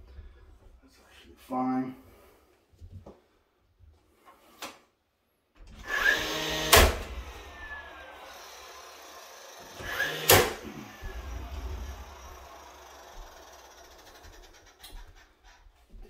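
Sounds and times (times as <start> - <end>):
nailer motor whir: 5.8 - 15.0
nail gun shots: 10.0 - 10.7.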